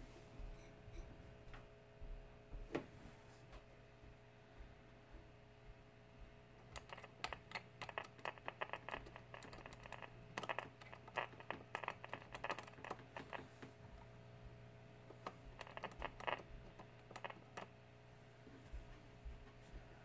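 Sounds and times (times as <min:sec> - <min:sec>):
steady low hum: 0:00.0 - 0:20.0
screwdriver clicking on contacts: 0:06.7 - 0:13.4, 0:15.2 - 0:17.7.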